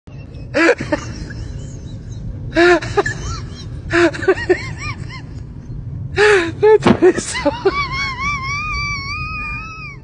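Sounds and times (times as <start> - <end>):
high-pitched laughing shrieks: 7.3 - 10.0.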